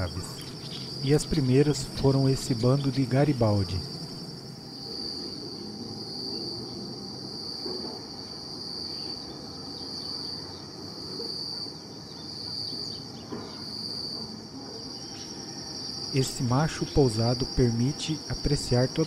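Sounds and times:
low rumbling background noise: 0:00.0 - 0:11.2
high-pitched insect chorus: 0:00.0 - 0:19.0.

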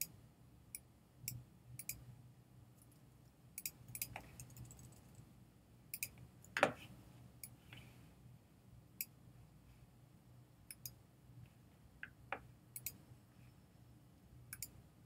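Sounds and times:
computer mouse clicks: 0:00.7 - 0:02.0, 0:03.6 - 0:05.2, 0:05.9 - 0:06.6, 0:10.7 - 0:11.0, 0:12.8 - 0:13.0, 0:14.5 - 0:14.8.

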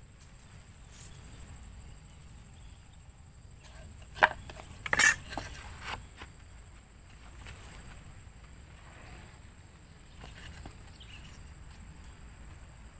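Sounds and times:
metal square clattering on wood: 0:03.7 - 0:05.7.

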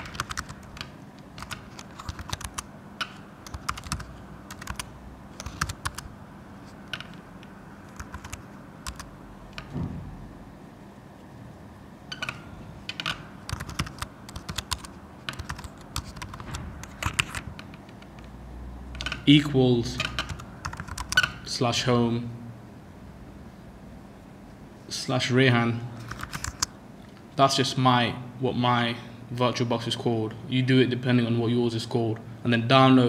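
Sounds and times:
typing on computer keyboard: 0:00.0 - 0:06.1, 0:07.9 - 0:09.1, 0:12.1 - 0:17.7, 0:20.0 - 0:21.4, 0:26.0 - 0:26.7.

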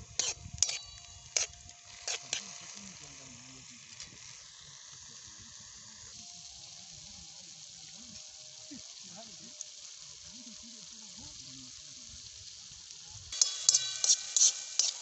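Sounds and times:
vegetables sizzling in a pan: 0:00.0 - 0:15.0
metal spoon clinking on pan: 0:00.2 - 0:01.5, 0:13.4 - 0:15.0.

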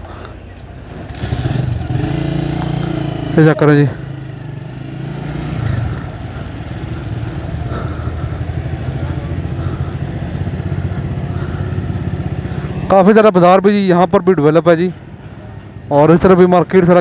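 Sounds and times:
vehicle engine running: 0:00.0 - 0:17.0.

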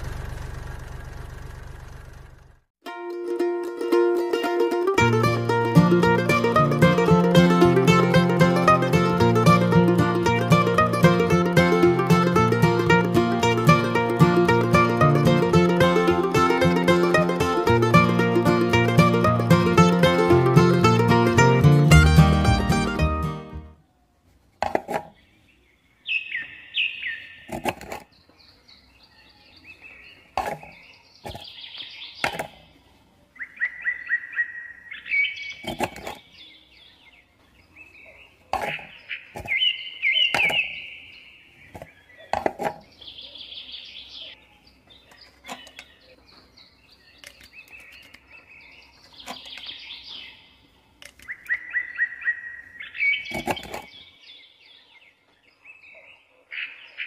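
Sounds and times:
small birds chirping: 0:25.1 - 0:57.0.

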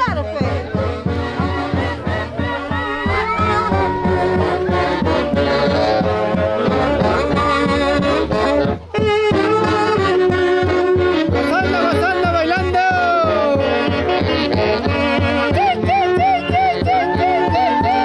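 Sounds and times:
wind instruments playing: 0:01.0 - 0:18.0
steady drum beat: 0:02.3 - 0:06.0.

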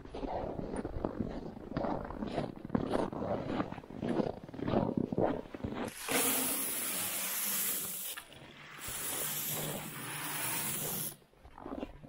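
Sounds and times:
corn kernels pouring: 0:05.9 - 0:08.2, 0:08.8 - 0:11.2.

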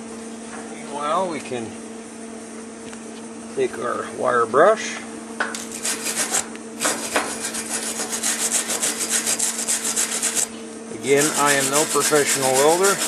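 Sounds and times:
wire brush scrubbing steel: 0:05.7 - 0:13.0.

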